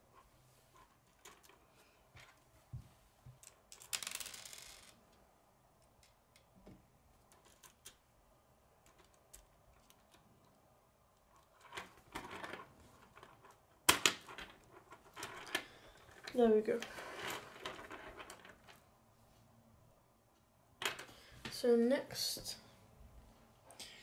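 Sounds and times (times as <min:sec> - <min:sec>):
plastic pieces clicking: 0:03.4 - 0:05.0, 0:07.2 - 0:08.0.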